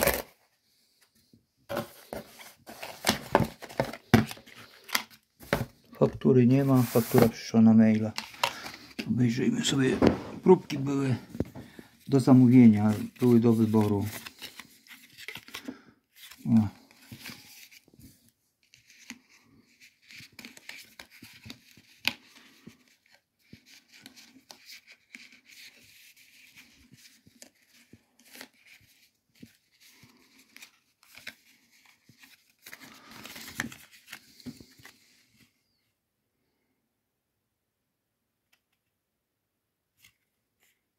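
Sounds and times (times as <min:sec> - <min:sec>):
cardboard rustling and scraping: 0:01.7 - 0:05.8, 0:06.5 - 0:09.0.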